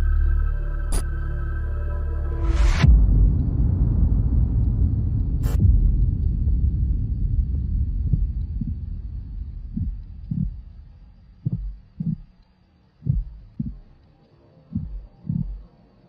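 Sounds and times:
low rumble: 0:00.0 - 0:14.0
heartbeat thumps: 0:02.8 - 0:12.4, 0:13.0 - 0:14.0, 0:14.7 - 0:15.7.

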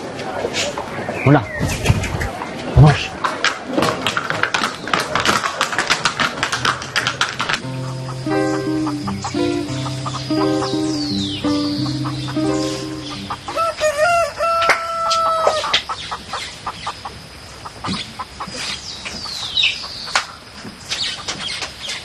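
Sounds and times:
small birds chirping: 0:00.6 - 0:03.0, 0:07.6 - 0:14.3, 0:15.5 - 0:22.0
soundtrack music: 0:07.6 - 0:13.6
rooster crowing: 0:13.3 - 0:15.8.

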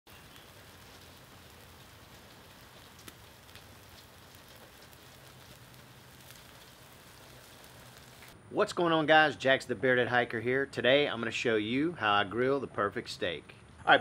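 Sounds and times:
meat sizzling on grill: 0:00.1 - 0:08.4
small crackles: 0:00.1 - 0:08.4.

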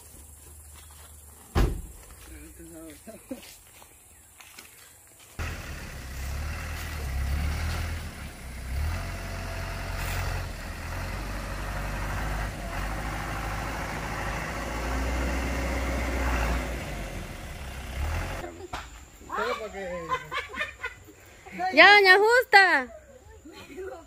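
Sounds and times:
truck engine running: 0:05.4 - 0:18.4.

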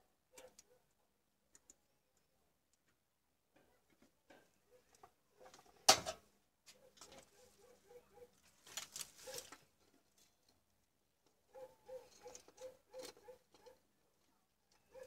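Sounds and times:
clicks and rustling: 0:08.4 - 0:10.6.

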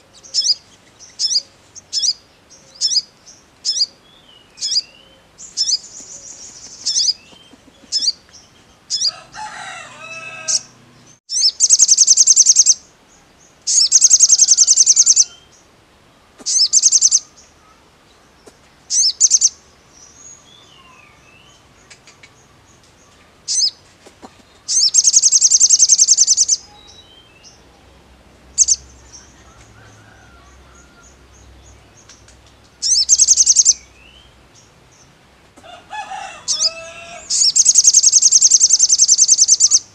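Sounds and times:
bird sharp chirps: 0:04.6 - 0:08.2, 0:11.3 - 0:12.8, 0:13.7 - 0:15.3, 0:16.4 - 0:17.3, 0:18.9 - 0:19.6, 0:24.7 - 0:27.6, 0:32.0 - 0:34.3, 0:36.5 - 0:39.9
bird high trills: 0:13.7 - 0:15.5, 0:24.7 - 0:27.1, 0:35.9 - 0:39.9.

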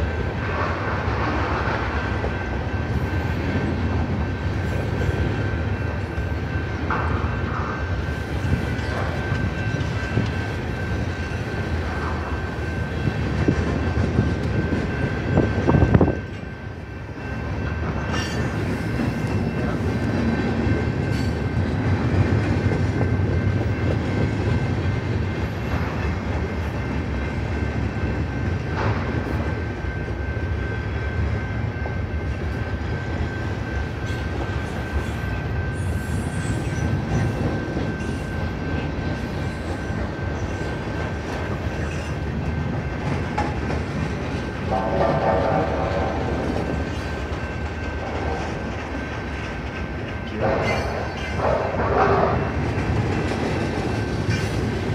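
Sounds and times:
train wheels rumbling on rails: 0:00.0 - 0:54.9
clacking over rail joints: 0:36.3 - 0:54.9.

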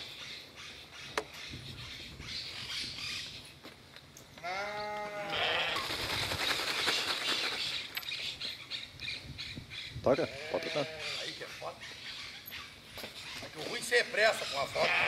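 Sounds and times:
lamb bleating: 0:04.4 - 0:05.8, 0:10.3 - 0:11.2, 0:14.8 - 0:15.0.

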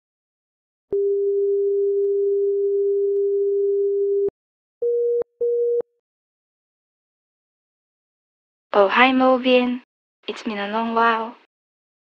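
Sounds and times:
electronic telephone ring tone: 0:00.9 - 0:05.9.

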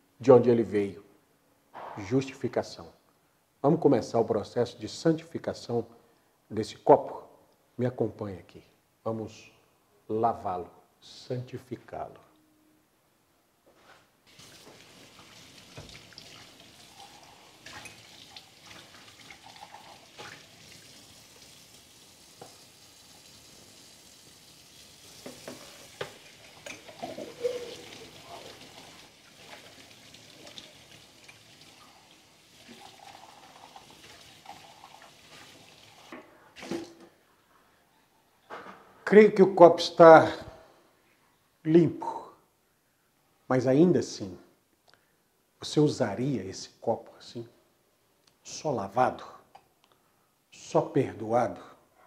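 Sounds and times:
water running from a tap: 0:14.3 - 0:36.1
glass clinking against sink: 0:26.6 - 0:27.8.

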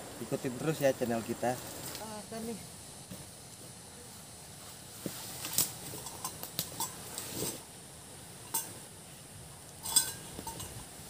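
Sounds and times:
faint steady hiss: 0:00.0 - 0:11.0
cookware clinking and knocking: 0:09.8 - 0:10.7.

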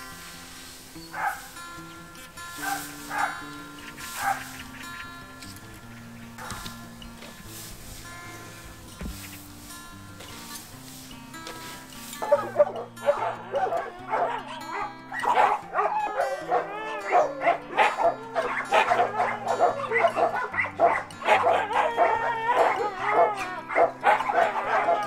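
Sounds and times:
background music with bass line: 0:00.0 - 0:25.0
dogs yipping and whining: 0:01.0 - 0:07.3, 0:11.5 - 0:25.0.

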